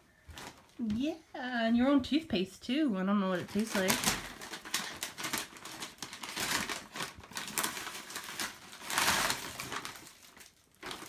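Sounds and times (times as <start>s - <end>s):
metallic wrapping paper tearing: 3.4s - 11.0s.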